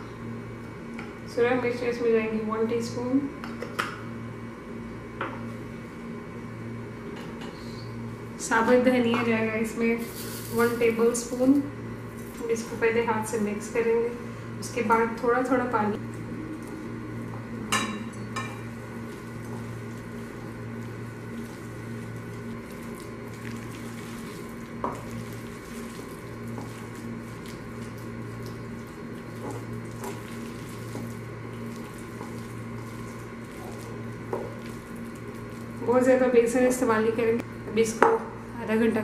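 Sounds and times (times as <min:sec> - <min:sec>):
steady low hum: 0:00.0 - 0:39.0
hands squishing dough mixture: 0:19.1 - 0:35.9.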